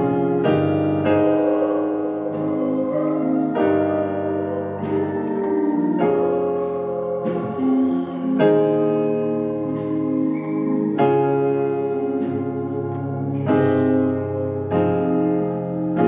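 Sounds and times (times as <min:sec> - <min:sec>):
keyboard piano chords: 0:00.0 - 0:16.0.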